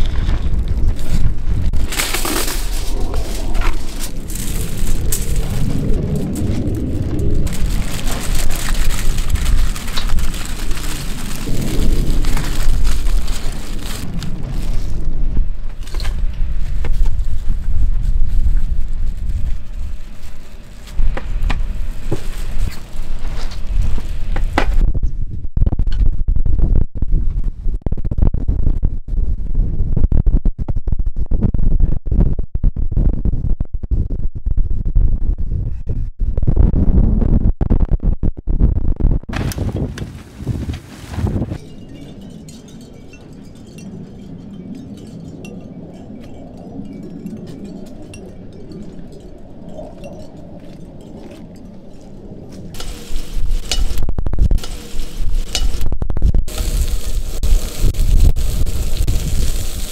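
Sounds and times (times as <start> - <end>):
wind rumbling on microphone: 0.0 - 59.9
rain falling: 2.7 - 15.0, 56.5 - 59.9.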